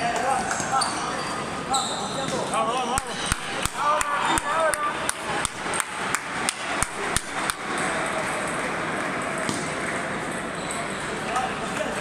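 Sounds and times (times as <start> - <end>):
crowd hubbub in large hall: 0.0 - 12.0
table tennis ball bouncing: 6.5 - 10.9.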